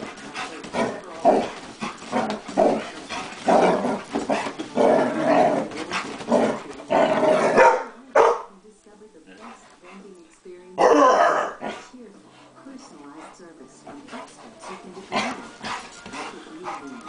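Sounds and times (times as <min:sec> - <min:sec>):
dog growling and barking: 0:00.0 - 0:08.4, 0:10.8 - 0:11.9, 0:14.1 - 0:17.0.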